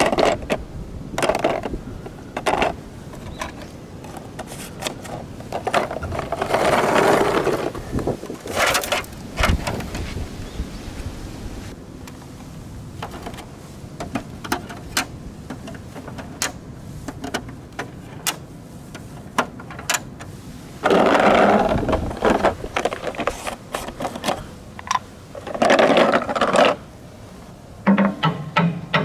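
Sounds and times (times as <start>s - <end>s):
balls rattling in plastic bottle: 20.8s - 26.8s.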